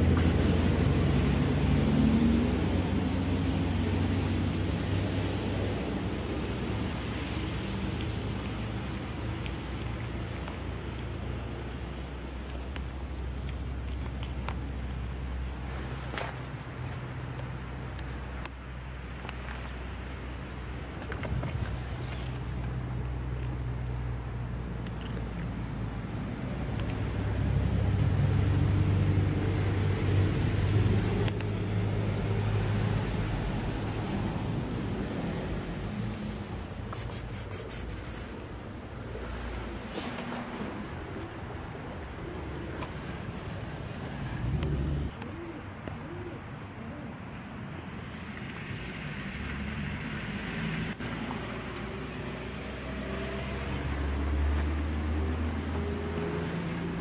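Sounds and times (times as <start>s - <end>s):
low hum: 0.0s - 16.0s
low rumble of distant traffic: 0.0s - 57.0s.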